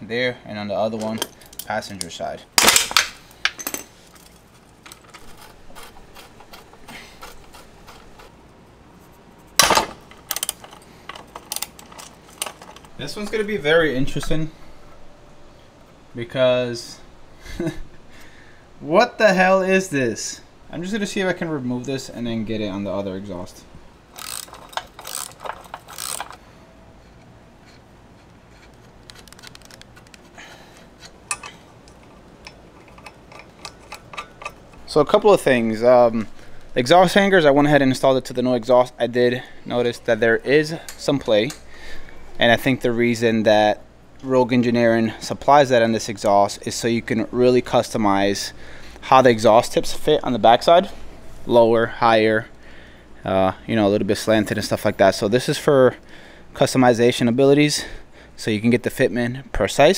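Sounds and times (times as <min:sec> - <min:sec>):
light metal clinks and rattles: 0:00.9 - 0:02.1, 0:02.9 - 0:08.3, 0:09.6 - 0:13.6, 0:24.1 - 0:35.6
ratchet wrench clicking: 0:10.2 - 0:12.8, 0:24.1 - 0:26.4, 0:27.6 - 0:30.2, 0:31.0 - 0:34.9.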